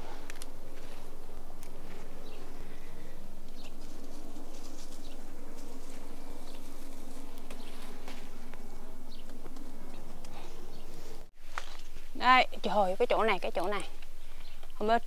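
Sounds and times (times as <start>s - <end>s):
insect buzzing: 0.0s - 12.2s
leaves rustling as beans picked: 0.0s - 12.2s.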